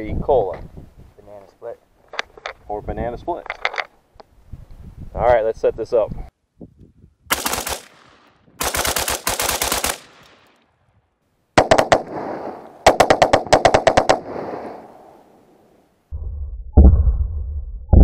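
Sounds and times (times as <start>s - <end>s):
rifle firing rapid shots: 7.3s - 10.6s, 11.6s - 14.8s
sharp crack: 7.3s - 10.7s, 11.6s - 15.7s
low rumble: 16.0s - 18.0s.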